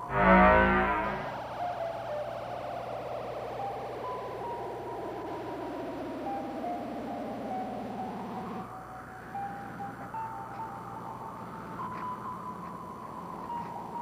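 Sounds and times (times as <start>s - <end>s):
pulsing tone sliding down: 0.0s - 8.6s
steady low hum: 0.0s - 14.0s.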